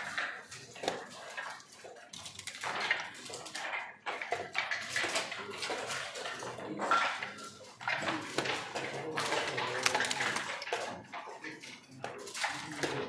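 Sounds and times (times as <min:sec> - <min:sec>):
checkers clicking on board: 0:00.0 - 0:11.0
dice rattling: 0:07.8 - 0:11.0.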